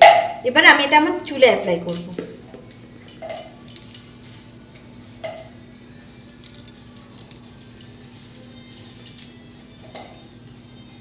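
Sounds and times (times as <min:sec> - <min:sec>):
small objects clinking: 0:03.1 - 0:04.2, 0:06.3 - 0:08.0, 0:09.0 - 0:09.4.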